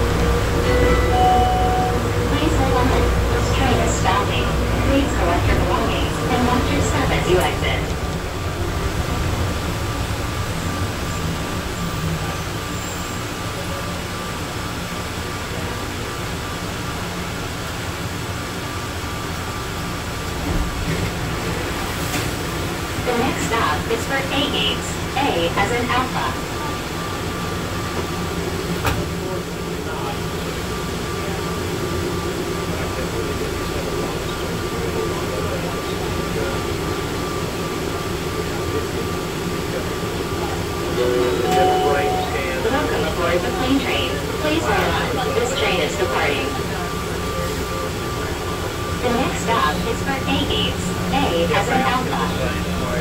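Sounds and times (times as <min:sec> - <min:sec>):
train car humming and rumbling: 0:00.0 - 0:53.0
faint high whine: 0:40.9 - 0:43.2.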